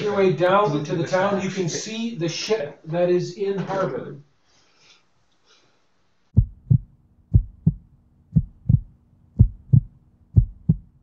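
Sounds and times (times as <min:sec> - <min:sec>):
faint steady hum: 0:00.0 - 0:11.0
heartbeat thumps: 0:06.4 - 0:11.0.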